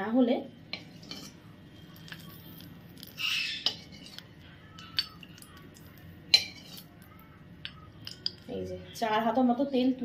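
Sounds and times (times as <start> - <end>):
ladle scraping wok: 0.7 - 4.4, 6.3 - 7.0.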